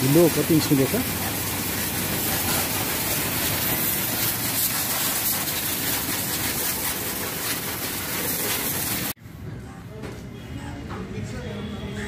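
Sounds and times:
pressure washer spraying: 0.0s - 9.2s.

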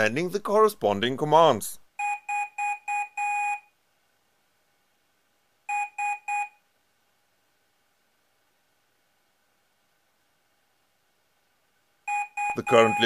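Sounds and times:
morse code beeps: 2.0s - 3.7s, 5.7s - 6.6s, 12.1s - 13.0s.

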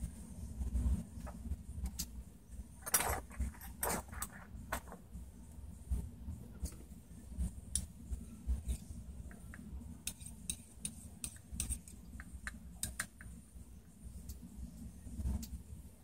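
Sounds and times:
rustling scrapes: 2.8s - 5.0s.

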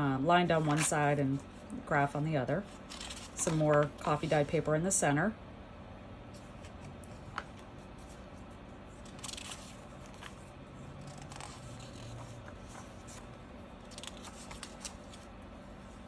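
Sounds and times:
paper pages rustling: 2.8s - 4.4s, 6.4s - 15.3s.

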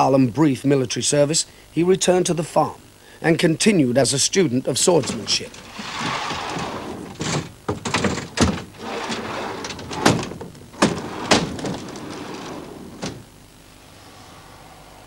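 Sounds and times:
wooden shutters rumbling along track: 4.9s - 13.3s
shutter panels banging into place: 5.0s - 13.2s.

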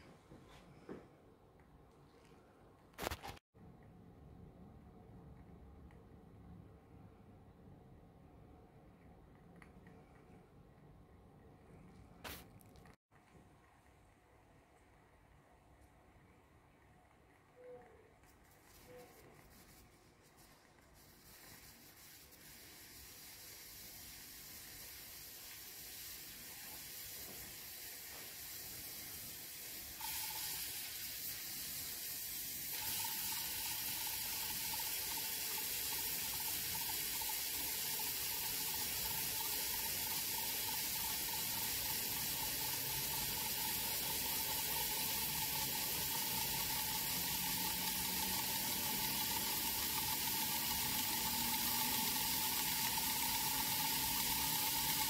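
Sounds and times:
steam jet hissing: 21.1s - 55.0s.

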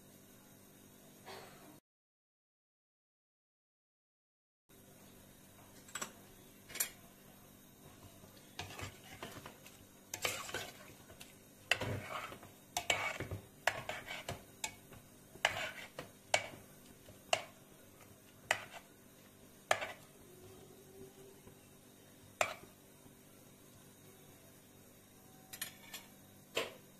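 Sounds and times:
spoon scraping in pot: 8.5s - 18.9s, 19.7s - 20.1s, 22.4s - 22.8s.

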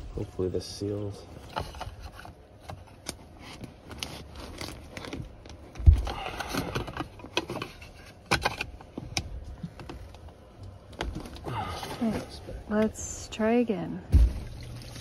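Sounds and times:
dull thump: 14.1s - 14.6s.

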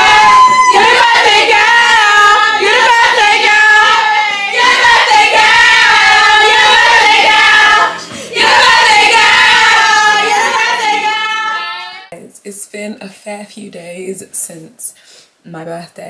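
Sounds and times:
woman singing with vibrato: 0.0s - 12.2s.

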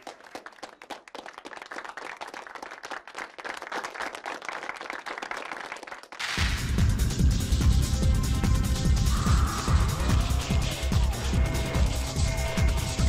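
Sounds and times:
children clapping: 0.0s - 6.4s.

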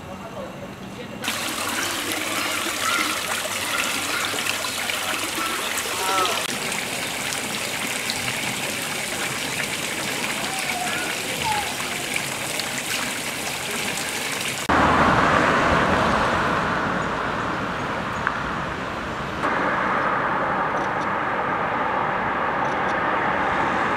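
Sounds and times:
fountain water splashing: 1.2s - 14.7s
cars passing on street: 14.5s - 23.9s.

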